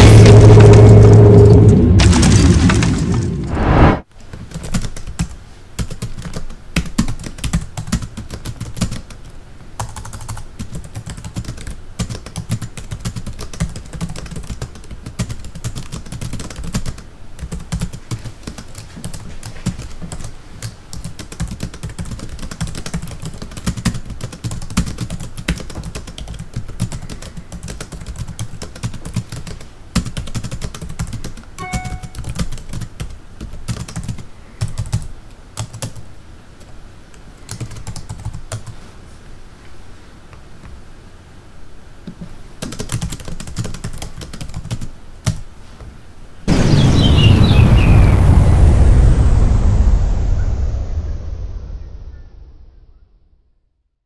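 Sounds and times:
computer keyboard typing: 4.3s - 36.0s, 37.5s - 38.7s, 42.1s - 45.4s.

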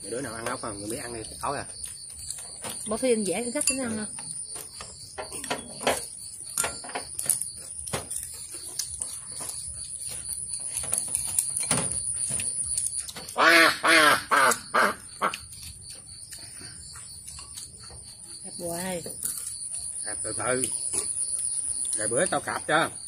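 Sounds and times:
high insect trill: 0.0s - 23.0s
duck quacking: 13.4s - 15.3s.

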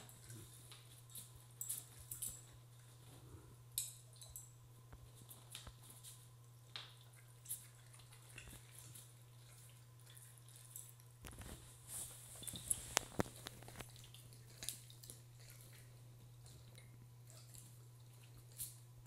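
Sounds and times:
steady low hum: 0.0s - 19.0s.

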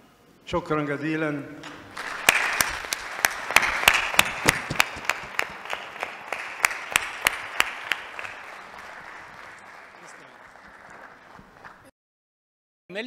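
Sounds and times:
audience applauding: 1.7s - 11.9s
nearby person clapping: 1.7s - 11.9s.

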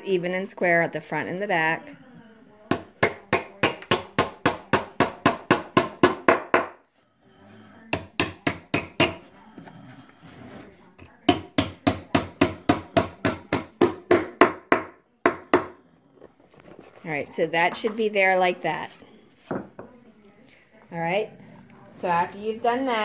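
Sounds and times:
hammer tapping nail into wood: 7.9s - 9.2s.

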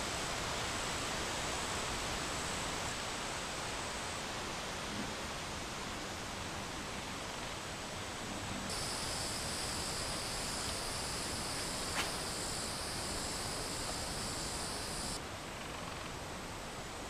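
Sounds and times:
soft outdoor hiss: 0.0s - 17.0s
insects buzzing: 8.7s - 15.2s.

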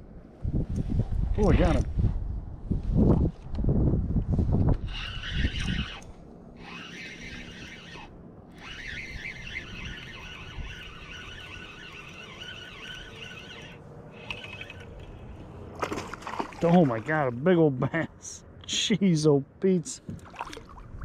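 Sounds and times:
fishing reel whirring: 4.8s - 15.5s.

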